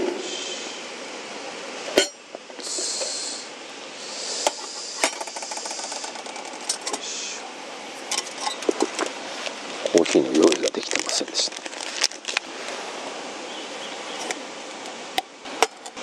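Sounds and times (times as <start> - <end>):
hiss: 0.0 - 1.0, 2.5 - 7.6
metal cookware knocks and clinks: 2.0 - 2.2.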